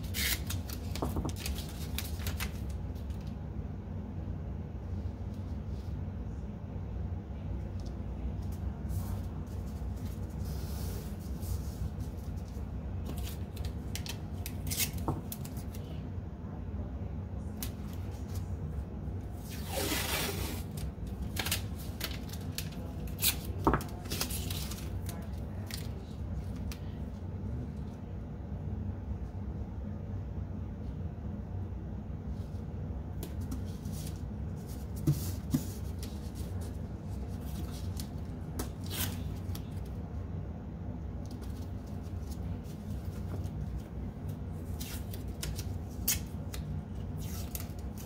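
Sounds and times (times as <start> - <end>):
tape ripping: 0.0 - 2.6, 19.5 - 22.4
tape rustling and clicking: 0.0 - 3.4, 12.5 - 15.9, 19.7 - 26.9, 41.2 - 48.0
steady low hum: 0.0 - 48.0.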